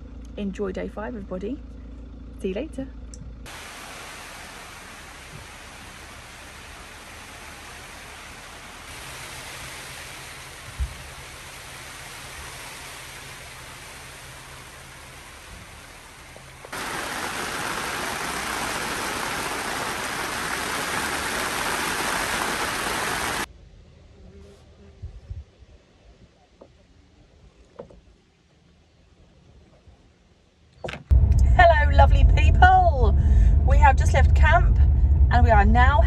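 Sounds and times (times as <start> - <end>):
rain on tent fabric: 3.5 - 23.5.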